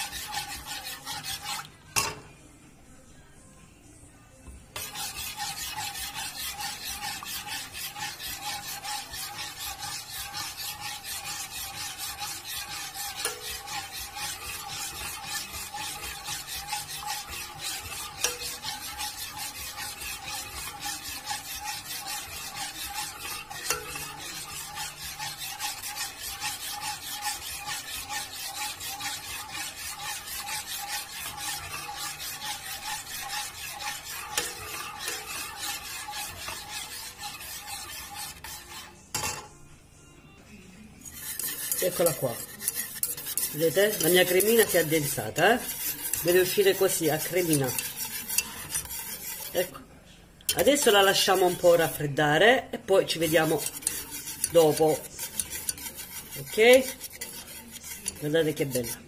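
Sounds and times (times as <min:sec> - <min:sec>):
metal spoon scraping a saucepan: 0:00.0 - 0:02.4, 0:04.7 - 0:39.6, 0:40.9 - 0:59.0.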